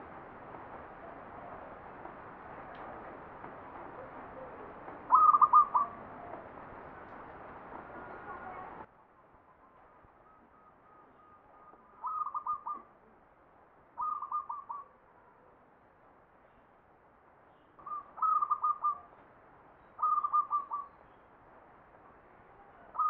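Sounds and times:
dove cooing: 1.0 - 1.8, 3.8 - 6.6, 10.6 - 12.9, 14.0 - 15.0, 17.8 - 19.1, 20.0 - 20.9.

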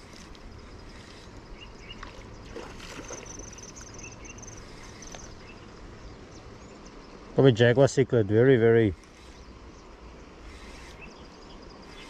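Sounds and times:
flowing river water: 0.0 - 6.0
insect trill: 0.0 - 12.0
faint bird chirps: 0.6 - 7.3, 9.0 - 12.0.

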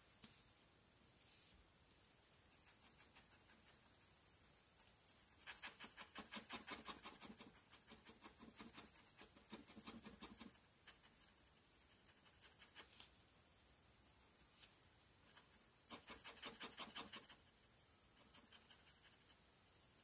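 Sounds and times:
pen scratching on paper: 5.4 - 13.1, 15.3 - 17.5.

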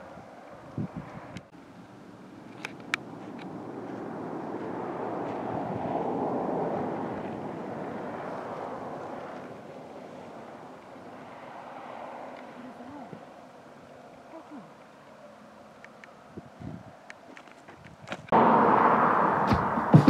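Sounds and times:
wind rushing over microphone: 0.0 - 1.5, 2.8 - 12.3, 16.3 - 17.0.

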